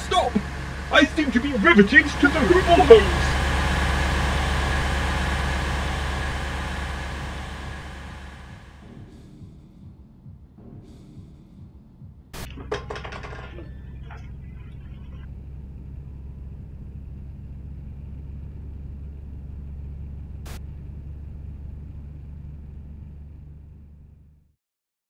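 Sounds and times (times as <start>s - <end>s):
low engine-like rumble: 0.0s - 24.5s
brief clatter: 12.4s - 15.2s.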